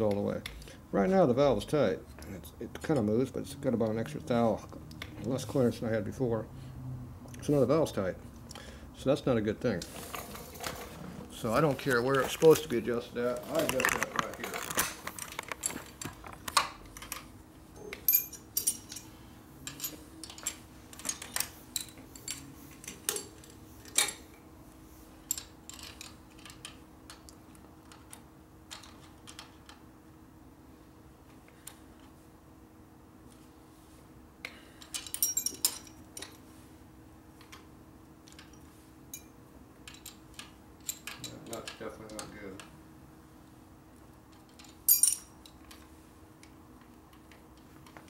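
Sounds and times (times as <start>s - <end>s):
faint steady hum: 0.0s - 48.0s
wrenches clicking and clinking: 10.1s - 24.4s, 25.2s - 29.8s, 34.8s - 36.4s, 38.2s - 42.8s, 44.3s - 48.0s.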